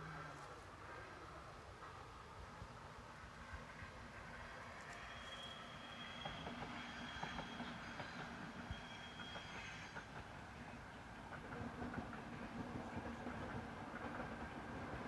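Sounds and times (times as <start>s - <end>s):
high-pitched squeal: 4.7s - 10.0s.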